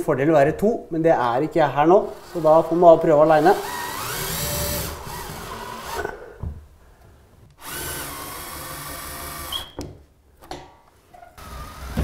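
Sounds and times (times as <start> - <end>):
cordless drill driving screws: 2.1 - 6.0, 7.6 - 9.8.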